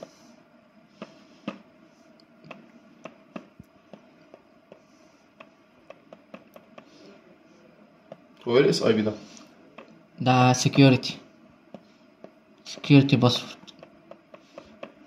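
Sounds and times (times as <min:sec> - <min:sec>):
fingertip tapping touchscreen: 0:02.4 - 0:07.0, 0:13.8 - 0:15.0.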